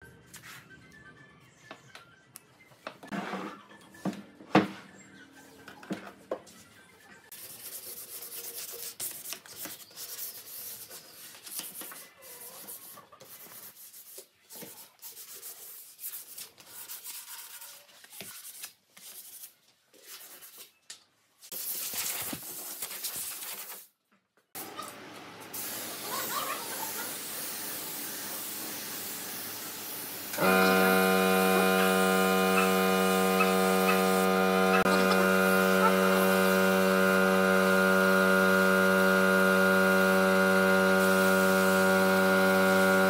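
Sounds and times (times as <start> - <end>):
sandpaper rubbing on wood: 7.3 - 19.5.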